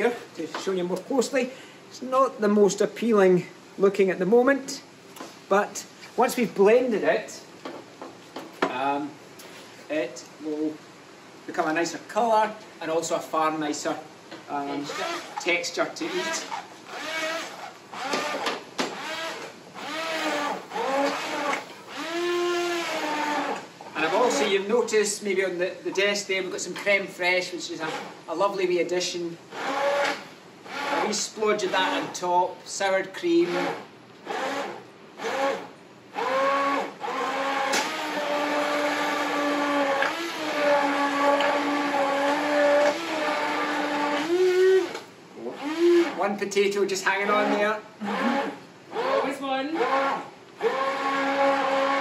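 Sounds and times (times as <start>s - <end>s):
immersion blender motor whine: 14.8s - 24.5s, 29.5s - 32.0s, 33.4s - 46.2s, 47.3s - 52.0s.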